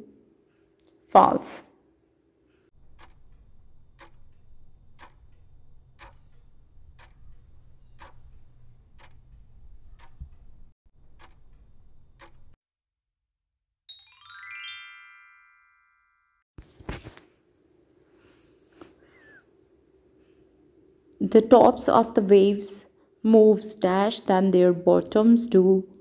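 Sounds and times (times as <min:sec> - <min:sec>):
countdown timer ticking: 0:02.8 - 0:10.4, 0:11.2 - 0:12.6
rising chime: 0:13.9 - 0:16.4.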